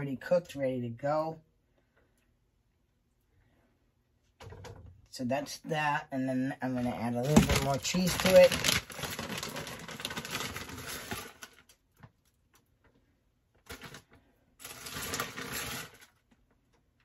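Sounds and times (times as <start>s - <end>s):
plastic bag crinkling: 6.8s - 12.6s, 13.6s - 16.5s.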